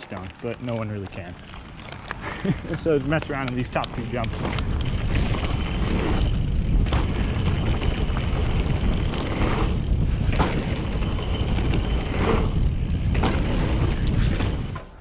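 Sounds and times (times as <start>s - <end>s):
tyres rolling on dirt: 0.0s - 15.0s
wind noise on microphone: 1.5s - 15.0s
bike knocks: 3.1s - 14.9s.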